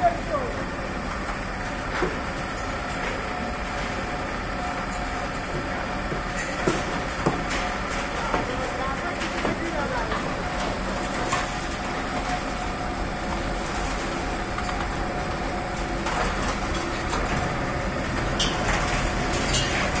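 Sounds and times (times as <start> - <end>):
chain conveyor clattering rumble: 0.0 - 20.0.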